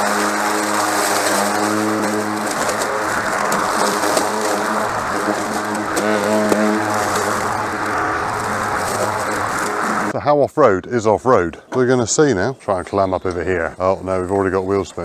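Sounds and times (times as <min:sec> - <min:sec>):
electric motor hum: 0:00.0 - 0:10.1
mower deck rushing noise: 0:00.0 - 0:10.1.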